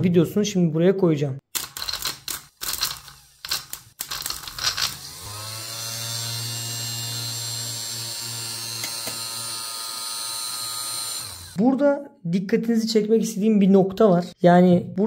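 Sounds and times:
electric motor humming: 2.5s - 11.6s.

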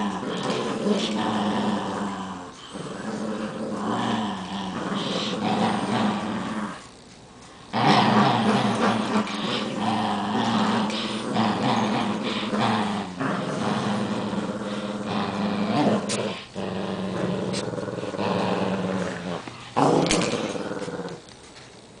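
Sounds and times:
dogs growling: 0.0s - 21.4s.

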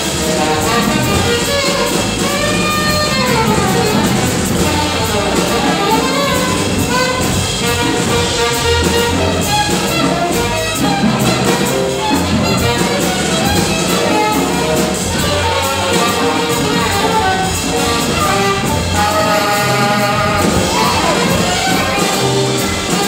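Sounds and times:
drums with cymbals: 0.0s - 23.0s
plucked upright bass: 0.0s - 23.0s
saxophone runs: 0.0s - 23.0s.

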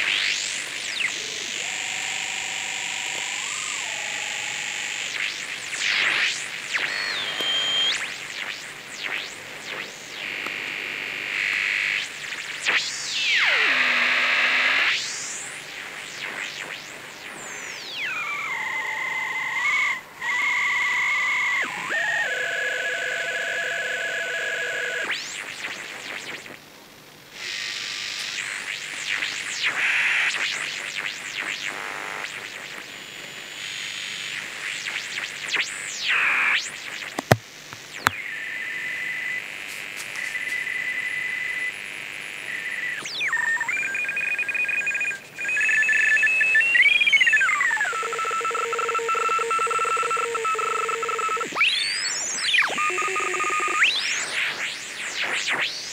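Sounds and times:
steady radio tones: 0.0s - 15.1s, 36.0s - 43.9s
static hiss: 0.0s - 22.1s, 23.8s - 43.7s
radio whistles sweeping in pitch: 0.1s - 9.2s, 17.4s - 25.1s, 38.0s - 55.8s
sharp clicks: 37.2s - 38.2s.

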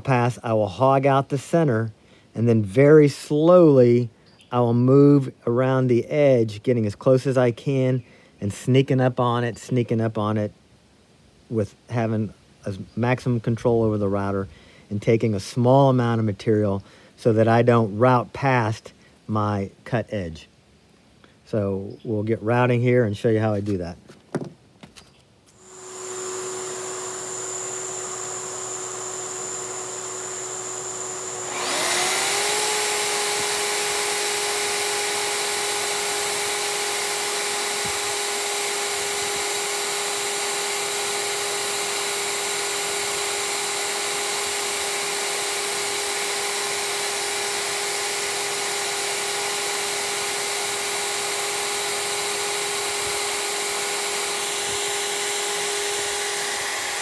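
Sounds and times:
router high whine: 25.6s - 57.0s
second motor spinning up: 25.6s - 57.0s.

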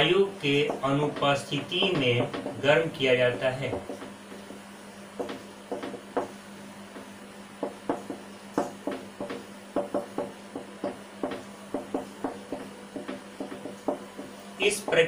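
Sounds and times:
faint electrical hum: 0.0s - 15.0s
marker writing on whiteboard: 0.6s - 4.6s, 5.2s - 6.3s.

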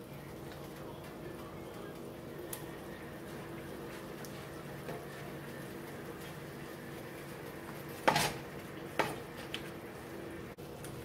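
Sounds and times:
faint simmering in a skillet: 0.0s - 11.0s
spatula knocking on skillet: 8.0s - 9.3s.

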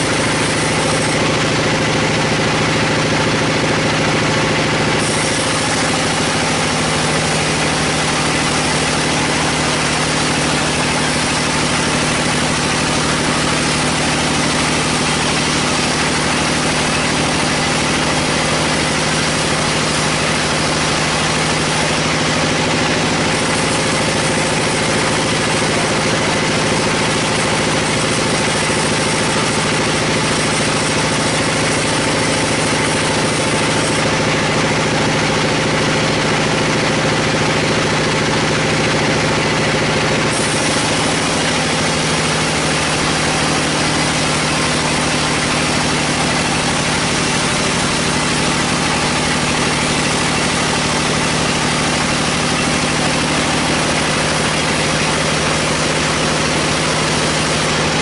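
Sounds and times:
band saw cutting log: 0.0s - 58.0s
even machine hum: 0.0s - 58.0s.

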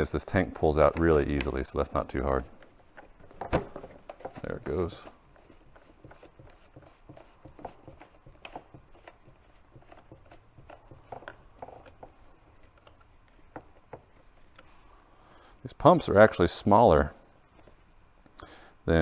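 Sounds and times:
plastic clicks and rubbing: 0.8s - 1.8s, 2.4s - 14.8s.

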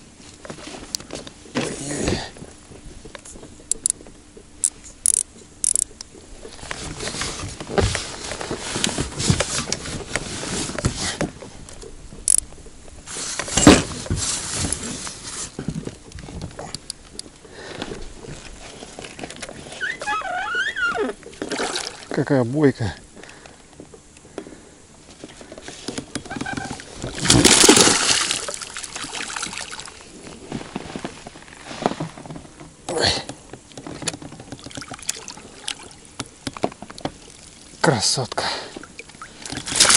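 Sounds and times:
sharp clicks: 4.6s - 6.1s, 12.2s - 12.5s
fish splashing in water: 21.3s - 22.1s, 26.4s - 30.1s, 38.9s - 39.9s.

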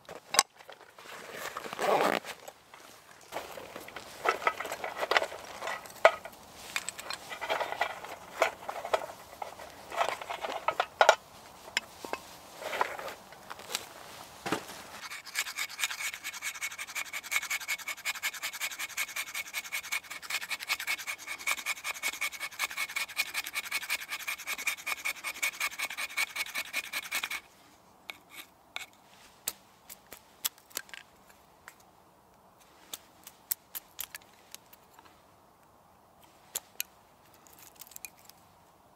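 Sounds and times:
clicks and rustling of handling: 0.0s - 14.7s, 36.2s - 38.4s
knife scraping wood: 15.0s - 27.5s, 28.1s - 29.0s.

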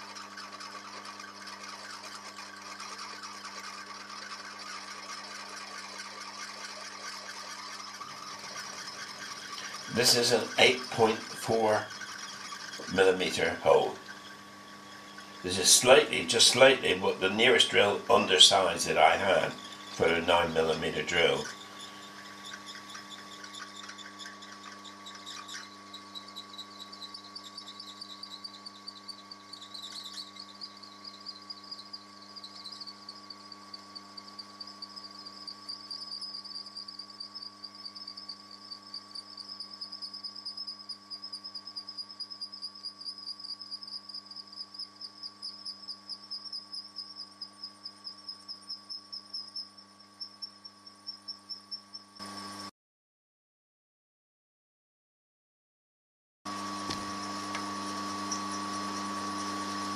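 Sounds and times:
machine motor hum: 0.0s - 42.6s, 56.5s - 59.9s
drill squealing whine in metal: 0.0s - 52.7s, 56.5s - 59.9s.

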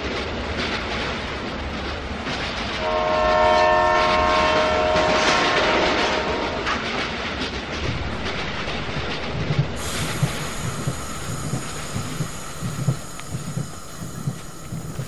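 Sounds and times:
train wagons rumbling: 0.0s - 15.0s
wheels clacking over rail joints: 4.0s - 15.0s.

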